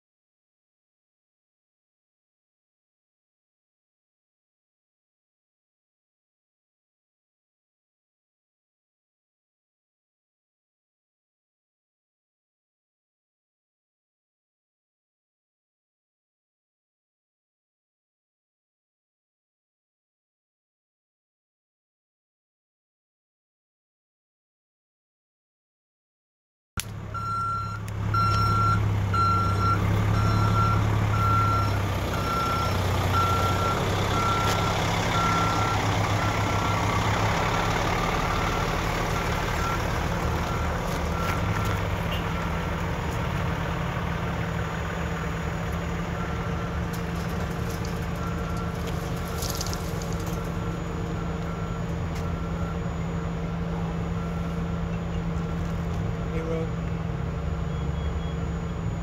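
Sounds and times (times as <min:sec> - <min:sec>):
truck engines rumbling: 0:26.8 - 0:59.0
reversing alarm beeping: 0:27.1 - 0:43.2, 0:44.2 - 0:59.0.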